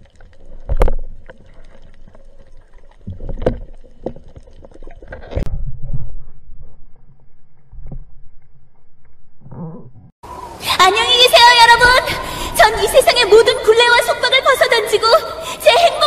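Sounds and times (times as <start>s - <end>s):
underwater clicks and knocks: 0.0s - 6.3s.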